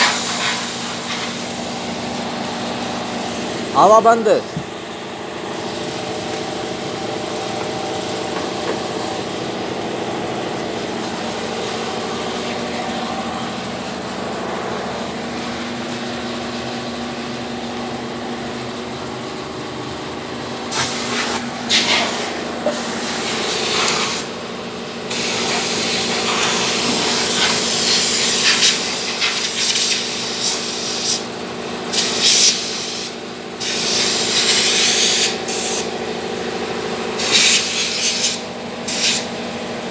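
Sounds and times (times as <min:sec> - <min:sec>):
spray jet hissing: 0:00.0 - 0:03.6
engine idling: 0:00.0 - 0:39.9.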